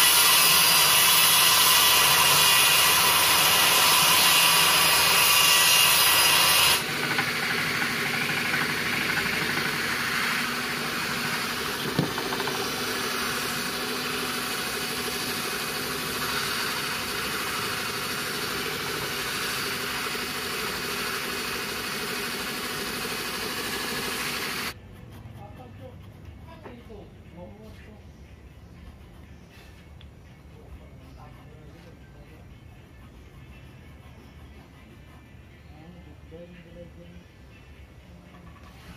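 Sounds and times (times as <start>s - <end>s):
power tool motor running: 0.0s - 24.8s.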